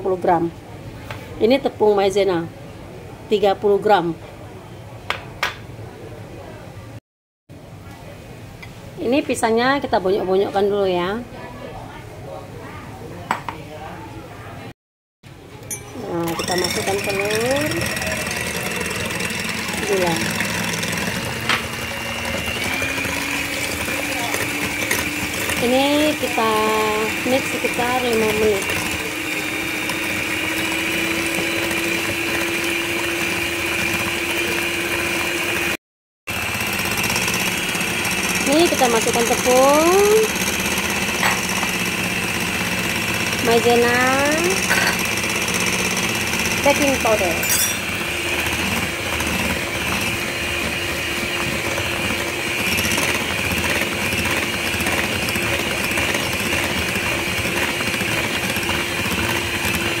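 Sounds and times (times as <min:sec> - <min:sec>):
electric hand mixer running: 0:16.0 - 1:00.0.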